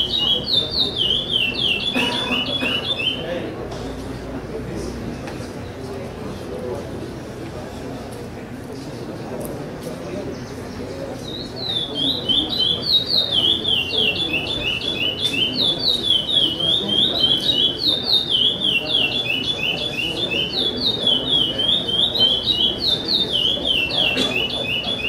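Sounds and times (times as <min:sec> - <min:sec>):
blackbird whistling song: 0:00.0 - 0:03.3, 0:11.2 - 0:25.0.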